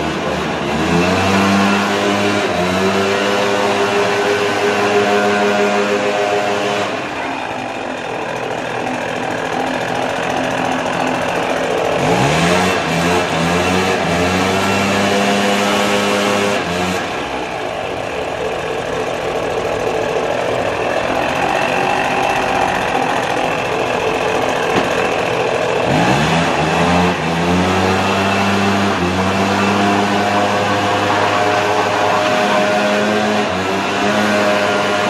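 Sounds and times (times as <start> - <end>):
leaf blower running: 8.3 - 17.4, 21.0 - 35.0.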